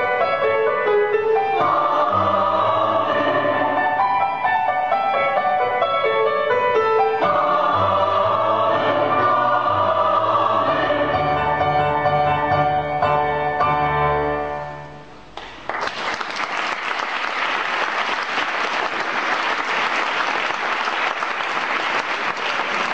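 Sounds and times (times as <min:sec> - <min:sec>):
choir singing: 0:01.2 - 0:04.8, 0:06.8 - 0:12.5
audience applause: 0:15.4 - 0:22.9.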